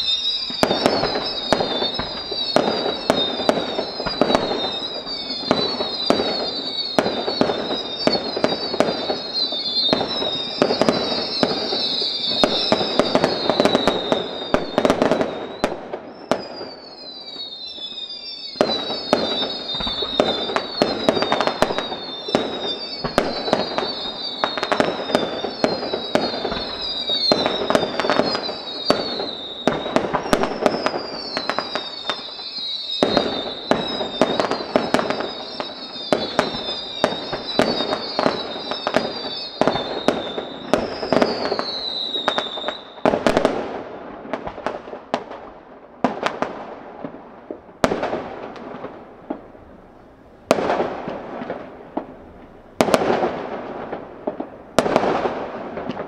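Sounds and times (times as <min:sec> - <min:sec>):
high falling whistle tone: 0:00.0 - 0:43.0
fireworks bangs and crackling: 0:00.0 - 0:56.0.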